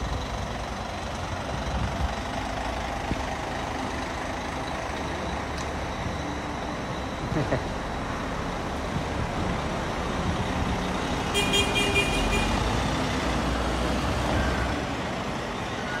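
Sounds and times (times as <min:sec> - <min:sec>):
bus engine rumbling: 0:00.0 - 0:16.0.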